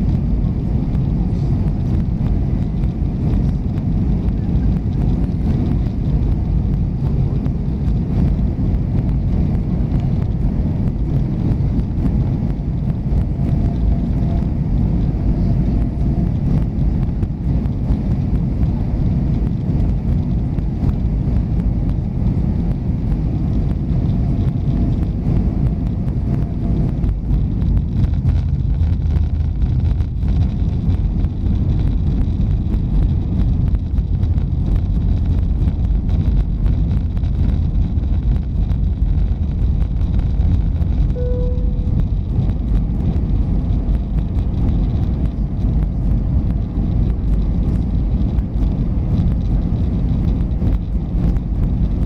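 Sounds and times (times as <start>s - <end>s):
airflow and jet engine rumble: 0.0s - 52.0s
faint high whine: 41.1s - 42.4s
faint tones: 41.2s - 42.3s.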